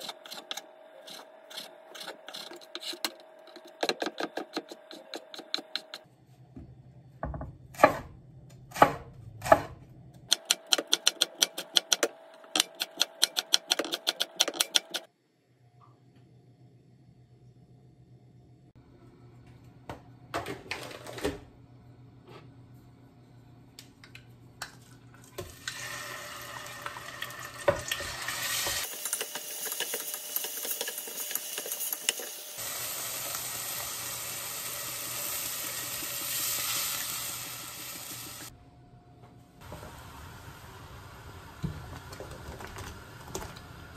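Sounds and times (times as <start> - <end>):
wooden spoon scraping pot: 0.0 - 6.0
beef sizzling in a pot: 25.5 - 38.5.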